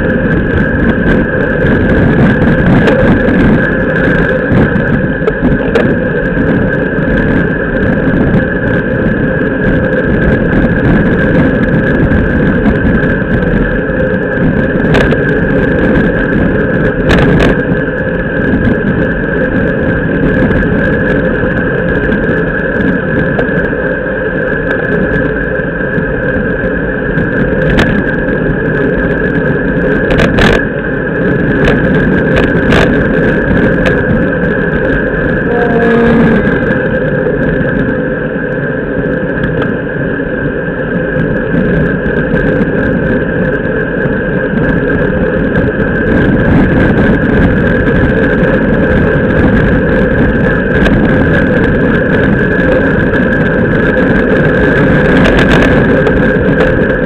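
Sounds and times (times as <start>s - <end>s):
road and tyre noise: 0.0s - 57.0s
wind buffeting: 0.0s - 57.0s
short pitched sound: 35.4s - 36.9s
steady high tone: 35.4s - 37.1s.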